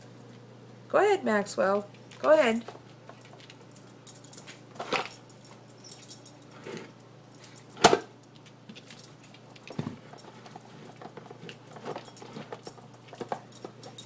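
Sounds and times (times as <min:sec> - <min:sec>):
dog eating from bowl: 0:08.7 - 0:14.0.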